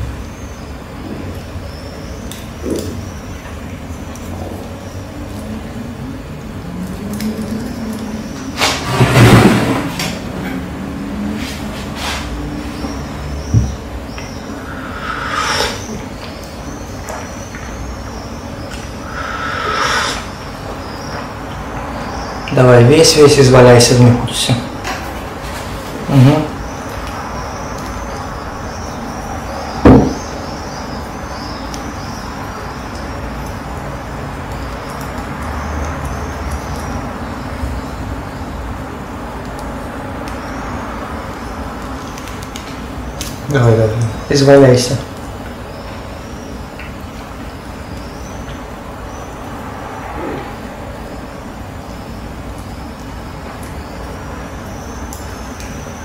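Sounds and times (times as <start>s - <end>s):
road traffic noise: 0.0s - 56.0s
person humming low: 5.4s - 8.6s.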